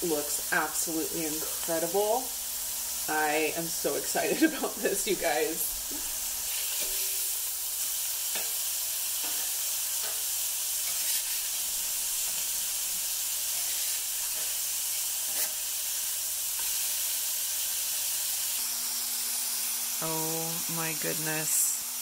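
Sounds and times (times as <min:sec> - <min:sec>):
patties sizzling on griddle: 0:00.0 - 0:22.0
metal spatula scraping griddle: 0:06.0 - 0:07.5, 0:09.2 - 0:17.2.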